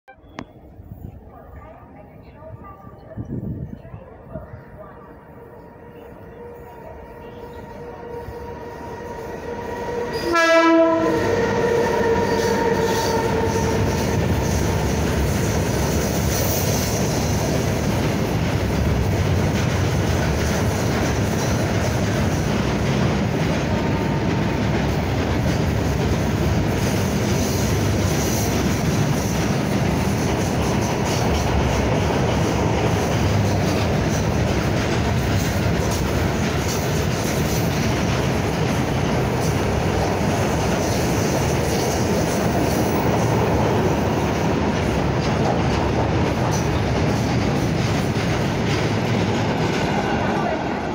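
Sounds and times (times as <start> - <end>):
locomotive horn: 5.3 - 14.3
freight wagons rolling on rails: 12.2 - 50.9.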